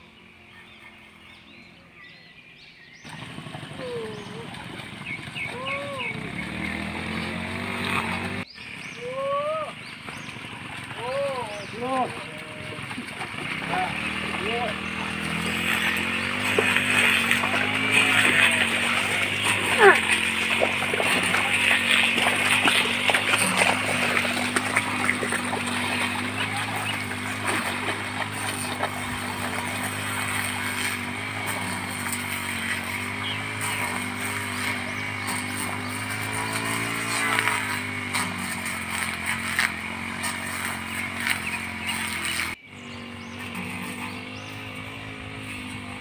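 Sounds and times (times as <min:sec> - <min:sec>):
small engine running: 0:02.9 - 0:46.0
mud squelching and sloshing: 0:03.0 - 0:08.8, 0:09.7 - 0:46.0.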